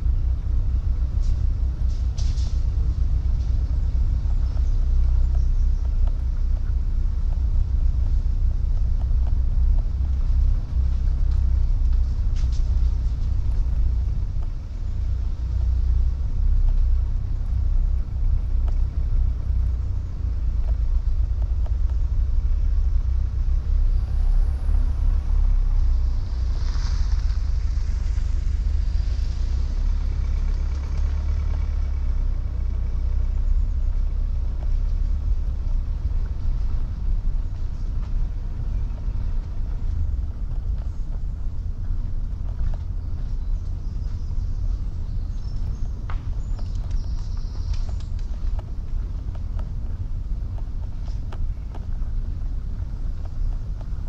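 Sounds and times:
car engine and tyres rumbling: 0.0s - 54.0s
passing car hiss: 23.7s - 30.1s.

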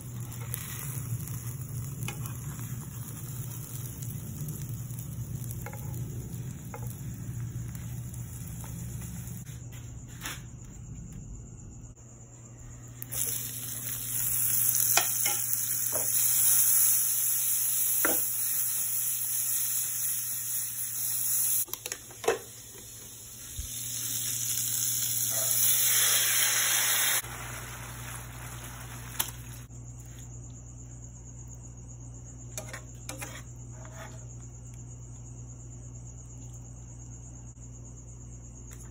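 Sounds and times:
food sizzling in a pan: 0.0s - 9.5s, 13.0s - 29.7s.

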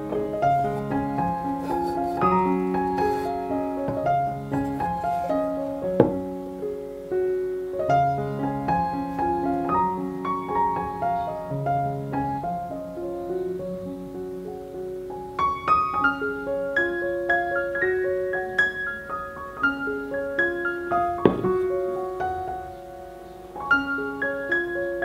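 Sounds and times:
solo piano music: 0.0s - 25.0s
light knock: 6.0s - 6.3s, 21.2s - 21.7s.

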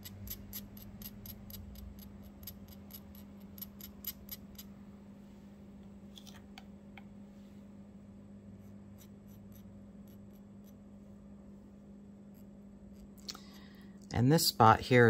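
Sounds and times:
faint ticks and scratches: 0.0s - 4.7s, 8.6s - 11.2s
steady low hum: 0.0s - 15.0s.

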